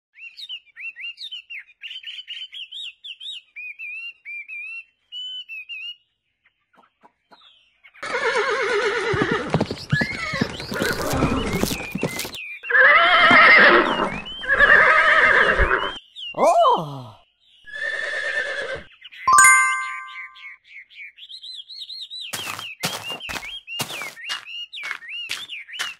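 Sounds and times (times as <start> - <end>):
small birds chirping: 0.2 - 8.0, 9.1 - 25.9
horse whinnying: 8.0 - 12.0, 12.7 - 16.0, 17.7 - 18.9.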